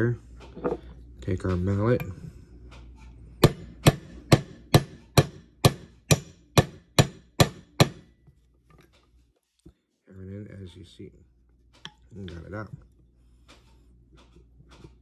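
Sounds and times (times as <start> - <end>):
mallet tapping a pin punch: 3.4 - 8.1.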